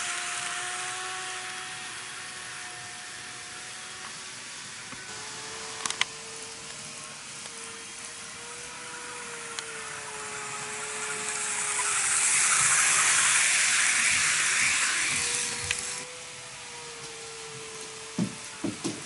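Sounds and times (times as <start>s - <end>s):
motor hum: 0.0s - 19.0s
model train wheels rattling: 9.5s - 16.0s.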